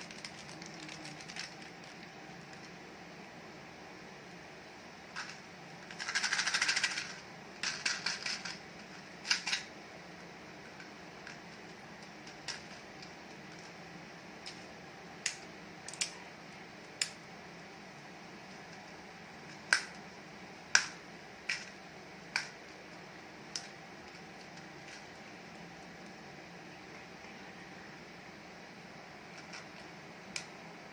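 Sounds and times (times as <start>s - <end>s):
mints rattling in box: 0.0s - 2.0s.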